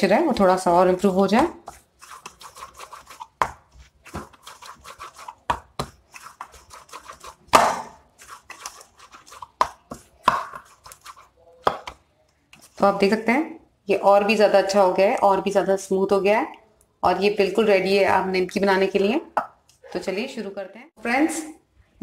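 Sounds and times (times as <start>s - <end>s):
dough kneaded in a bowl: 0.0s - 13.2s.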